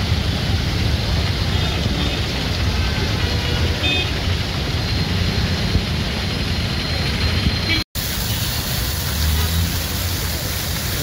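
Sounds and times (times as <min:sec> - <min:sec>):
fountain water splashing: 0:00.0 - 0:07.4, 0:08.0 - 0:11.0
low rumble of street traffic: 0:00.0 - 0:11.0.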